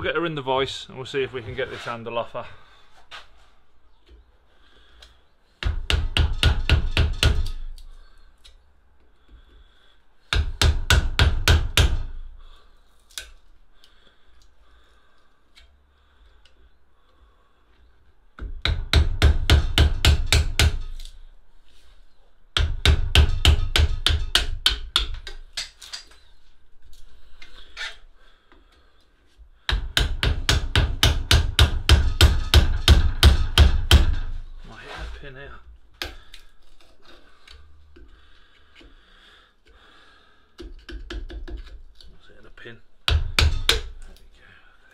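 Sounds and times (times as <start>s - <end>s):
hammer striking chisel: 5.6s - 7.6s, 18.4s - 21.1s, 22.6s - 25.7s, 29.7s - 34.4s, 43.1s - 44.0s.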